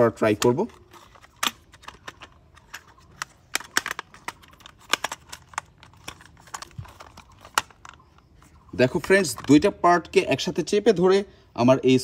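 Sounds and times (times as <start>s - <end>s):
plastic toy parts clicking: 0.2s - 9.6s.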